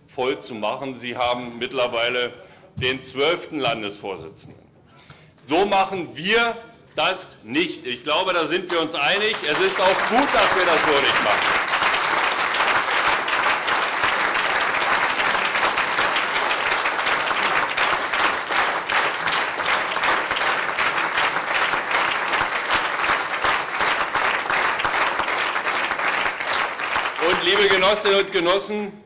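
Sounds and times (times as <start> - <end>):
audience applauding: 8.6 - 28.3.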